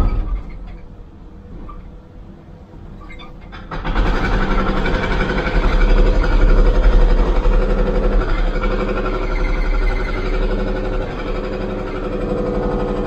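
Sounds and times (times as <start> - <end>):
diesel engine running under load: 3.5 - 13.0
hydraulic breaker hammering concrete: 3.5 - 13.0.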